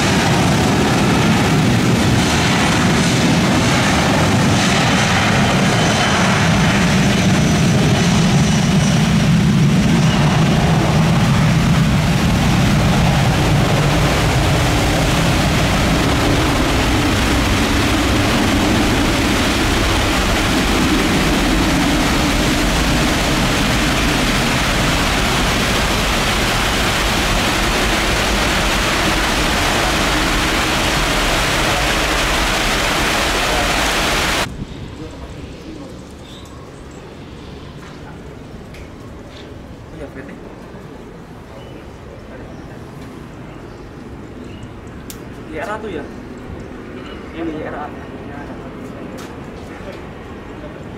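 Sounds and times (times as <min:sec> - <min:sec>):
jet engines rumbling: 0:00.0 - 0:50.9
heavy rain hissing: 0:10.0 - 0:34.5.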